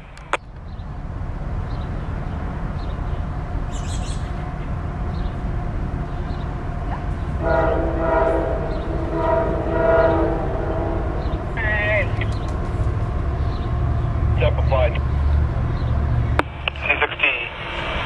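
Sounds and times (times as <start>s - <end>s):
low rumble: 0.0s - 18.0s
locomotive air horn blasts: 7.4s - 11.9s.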